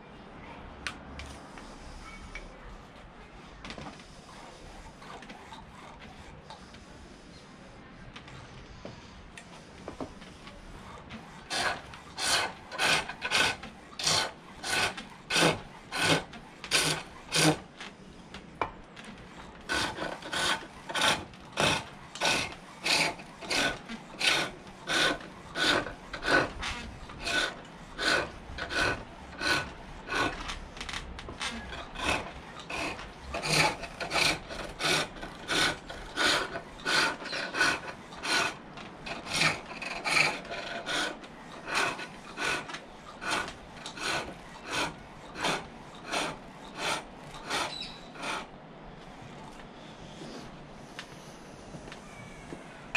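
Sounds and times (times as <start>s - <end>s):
lathe tool scraping wood: 9.9s - 17.8s, 19.0s - 49.1s.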